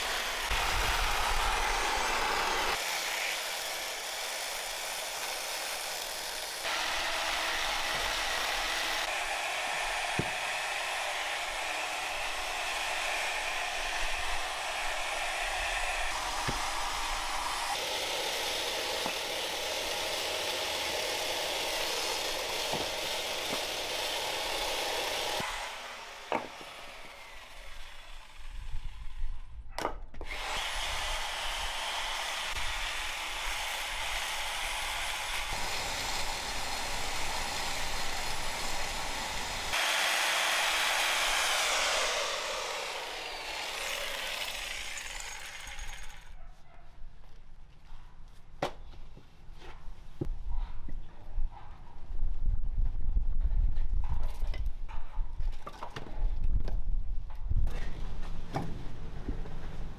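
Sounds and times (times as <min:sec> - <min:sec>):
chainsaw cutting logs: 0:00.0 - 0:29.3, 0:30.2 - 0:46.4.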